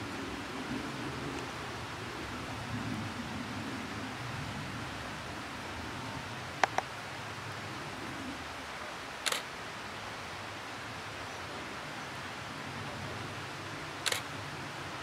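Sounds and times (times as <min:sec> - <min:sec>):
steady background hiss: 0:00.0 - 0:15.0
camera shutter clicking: 0:09.2 - 0:09.5, 0:14.0 - 0:14.2.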